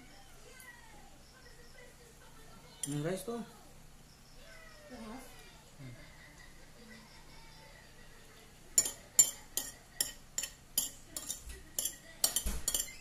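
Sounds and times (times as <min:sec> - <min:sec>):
metal spoon scraping a plate: 0:08.8 - 0:13.0.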